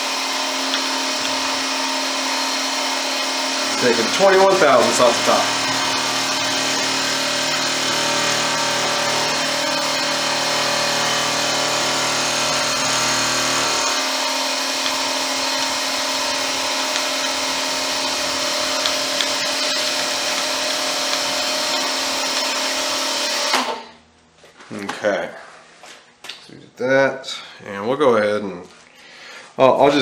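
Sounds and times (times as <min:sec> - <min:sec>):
milling machine hum: 0:00.0 - 0:23.8.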